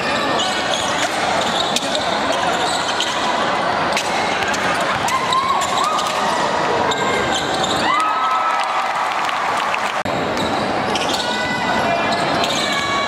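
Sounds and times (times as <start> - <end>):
background hubbub: 0.0 - 7.9, 9.4 - 13.0
sneakers squeaking on floor: 0.0 - 8.0, 10.1 - 11.4, 12.0 - 13.0.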